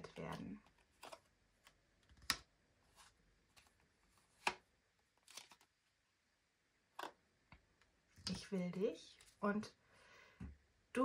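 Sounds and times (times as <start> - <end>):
cards being handled: 0.3 - 5.7.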